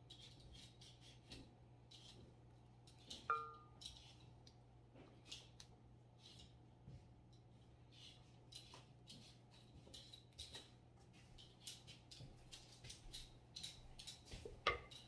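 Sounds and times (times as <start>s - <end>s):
low steady hum: 2.5s - 4.9s.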